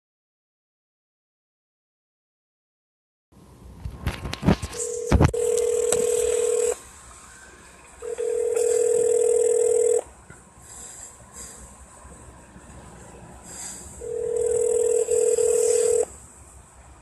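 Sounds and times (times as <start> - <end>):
telephone line clicking: 4.8 - 6.8, 8.0 - 10.1, 14.1 - 16.1
telephone ringback tone: 4.8 - 6.8, 8.0 - 10.1, 14.0 - 16.1.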